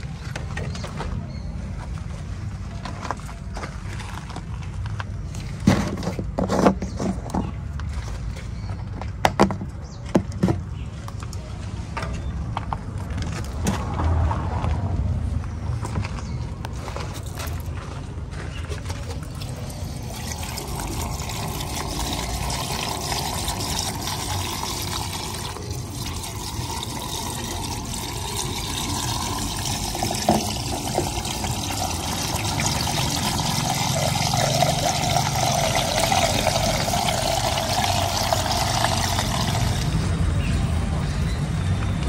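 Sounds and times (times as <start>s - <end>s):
liquid pouring through funnel: 19.0s - 40.0s.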